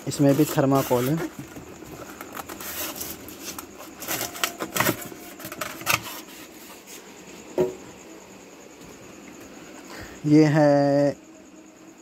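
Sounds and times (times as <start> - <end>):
foam packing rustling and scraping: 0.0 - 7.2.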